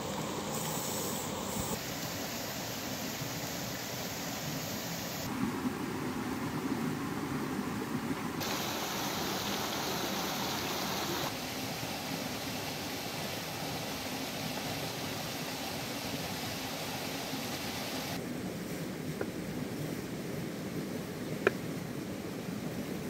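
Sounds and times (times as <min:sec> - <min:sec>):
stream water rushing: 0:00.0 - 0:05.3, 0:08.4 - 0:18.2.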